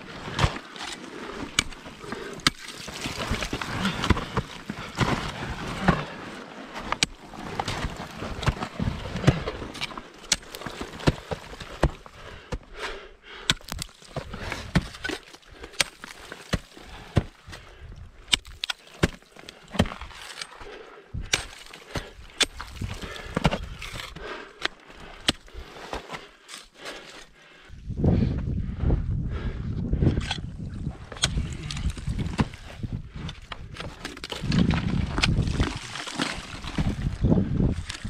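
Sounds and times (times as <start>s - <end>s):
scraping and crunching: 0.0s - 12.8s, 13.5s - 27.4s, 31.1s - 38.0s
ice tools chopping into ice: 0.2s - 6.2s, 6.8s - 12.1s, 13.4s - 17.4s, 18.3s - 20.6s, 21.3s - 27.2s, 33.8s - 37.0s.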